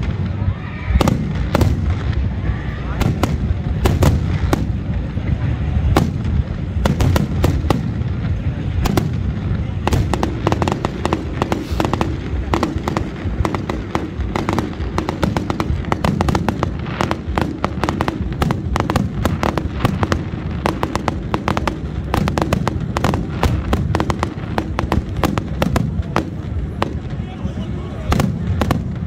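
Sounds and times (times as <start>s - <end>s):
fireworks bangs and cracks: 0.0s - 29.0s.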